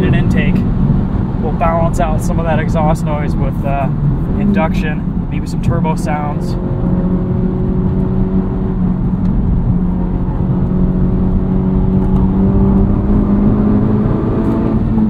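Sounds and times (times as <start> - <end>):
car exhaust drone in cabin: 0.0 - 15.0.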